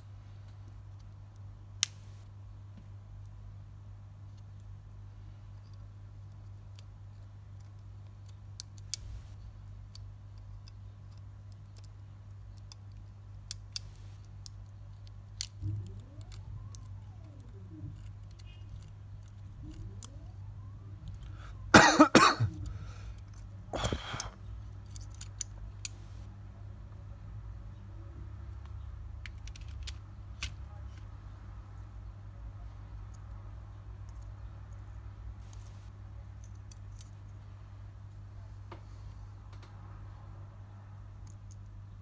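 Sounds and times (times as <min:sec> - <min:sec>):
low electrical hum: 0:00.0 - 0:42.0
person coughing: 0:21.7 - 0:22.7.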